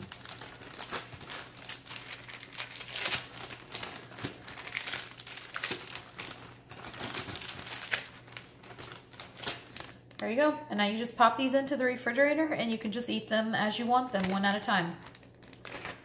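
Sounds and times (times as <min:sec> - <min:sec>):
plastic bag and paper crinkling: 0:00.0 - 0:10.2, 0:14.0 - 0:16.0.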